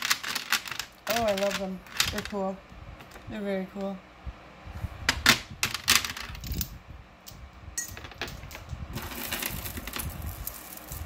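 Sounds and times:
beads clicking on plastic tray: 0.0 - 2.4
jewelry rustling: 0.0 - 3.3, 7.8 - 11.0.

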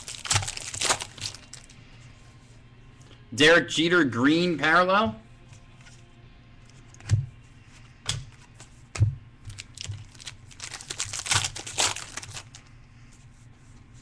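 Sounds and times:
foil wrapper crinkling and tearing: 0.0 - 1.7, 9.5 - 12.7.

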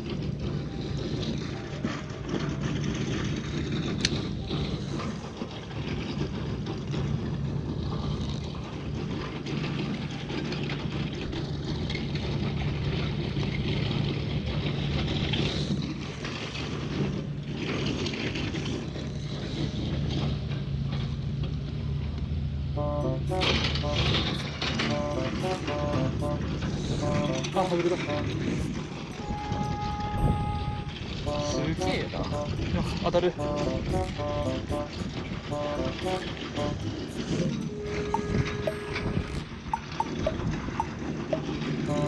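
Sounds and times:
low engine hum: 0.0 - 42.0
wind: 0.0 - 42.0.

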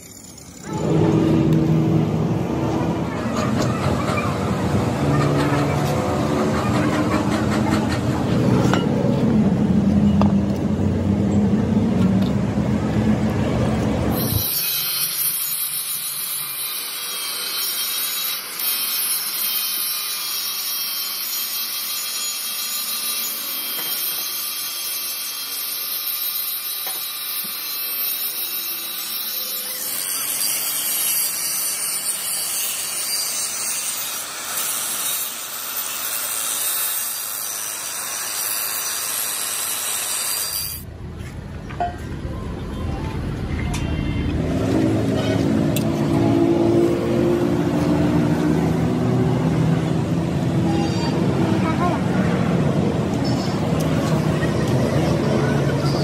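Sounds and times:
low mechanical rumble: 0.6 - 14.4, 40.8 - 46.3.

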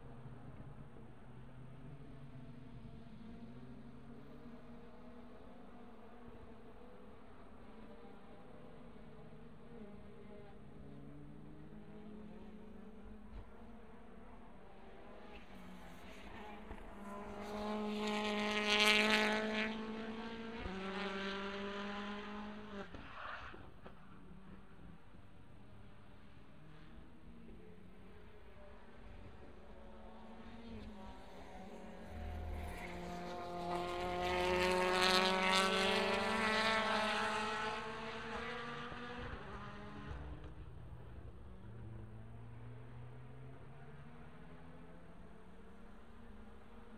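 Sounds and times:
racing car engine passing: 30.4 - 40.4.

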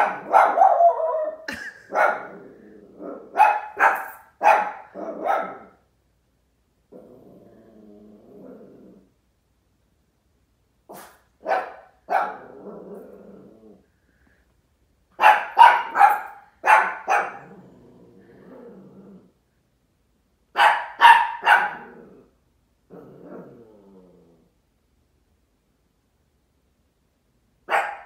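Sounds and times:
dog barking: 0.0 - 2.4, 3.2 - 5.8, 10.9 - 12.6, 15.2 - 17.5, 20.6 - 22.0, 27.7 - 28.0
dog growling: 2.2 - 3.4, 6.9 - 9.2, 12.2 - 13.9, 17.2 - 19.4, 21.7 - 24.6.

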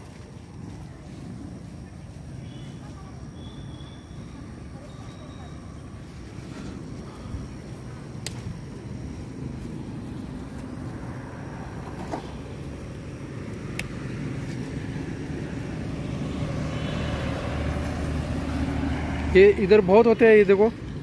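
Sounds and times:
low outdoor rumble: 0.0 - 21.0
sharp clicks: 8.2 - 8.6, 13.4 - 14.1.

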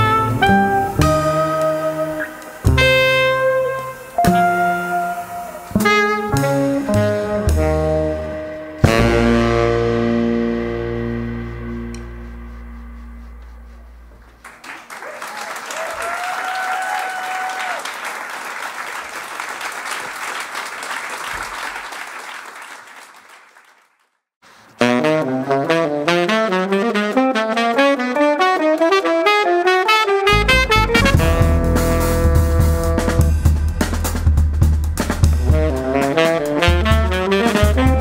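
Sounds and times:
jazz band closing chord: 0.0 - 14.4, 24.8 - 38.0
drums: 0.0 - 14.5, 30.3 - 38.0
tenor saxophone run: 0.0 - 14.6, 24.8 - 33.5, 35.3 - 38.0
audience applauding: 14.2 - 24.2
crowd cheering: 14.3 - 23.9.

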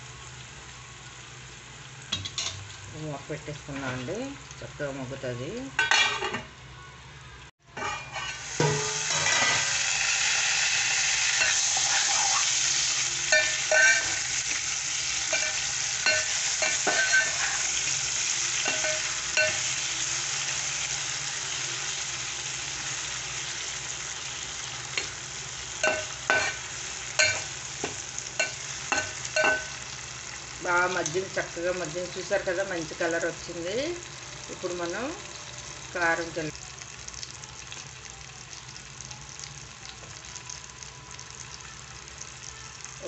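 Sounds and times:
eggplant sizzling in a pot: 0.0 - 43.0
metal spoon scraping a pot: 7.8 - 9.7, 11.4 - 12.6.

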